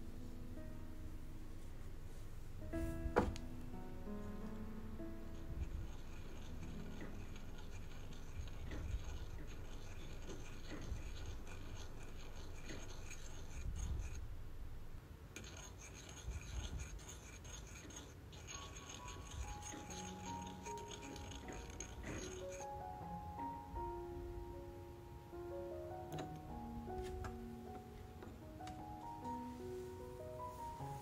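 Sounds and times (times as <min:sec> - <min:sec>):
soft background music: 0:00.0 - 0:14.1, 0:17.8 - 0:31.0
metal stick scraping metal spoon: 0:05.3 - 0:14.2, 0:15.4 - 0:22.7.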